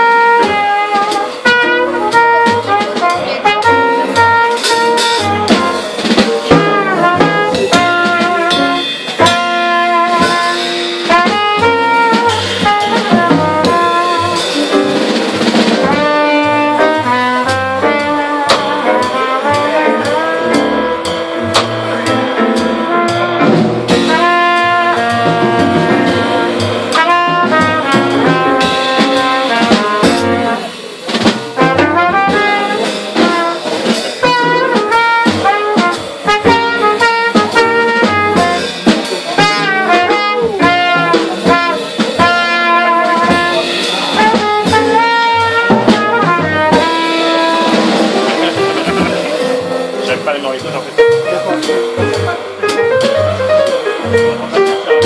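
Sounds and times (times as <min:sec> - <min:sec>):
cornet melody: 0:00.0 - 0:55.0
drum kit with cymbals: 0:00.0 - 0:55.0
piano: 0:00.0 - 0:55.0
upright bass: 0:00.0 - 0:55.0.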